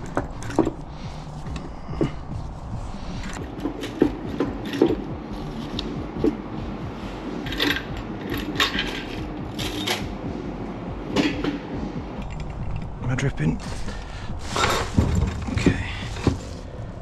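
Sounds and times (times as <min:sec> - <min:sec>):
metal scraping: 0:13.6 - 0:16.8.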